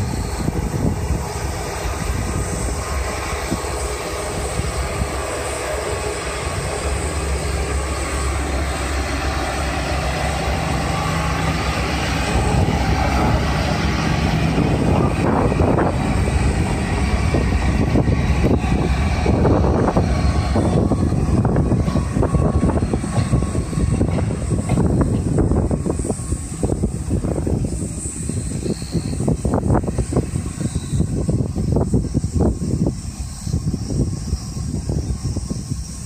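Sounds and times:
diesel locomotive engine running: 0.0s - 36.0s.

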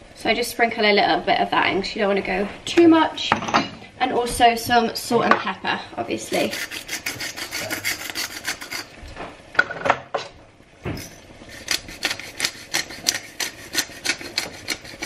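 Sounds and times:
pepper mill grinding: 6.3s - 8.9s, 10.9s - 15.0s.

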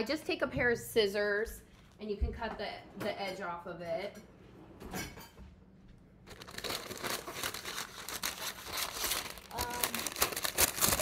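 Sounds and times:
paper crinkling and rustling: 6.2s - 11.0s.

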